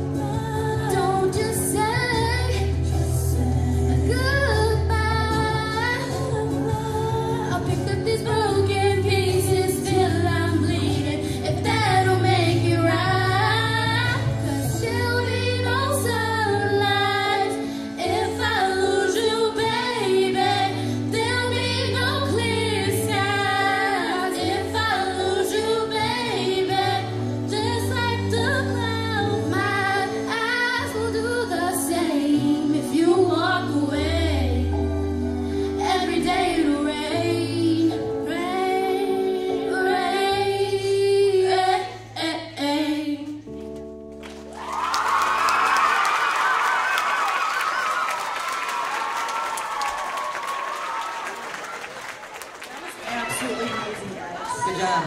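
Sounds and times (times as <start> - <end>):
girls singing a pop ballad: 0.0 - 43.8.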